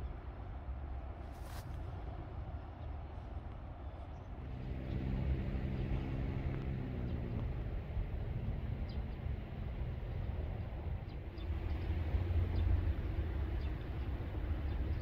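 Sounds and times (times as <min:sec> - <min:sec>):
constant low rumble: 0:00.0 - 0:15.0
passing vehicle humming: 0:04.3 - 0:15.0.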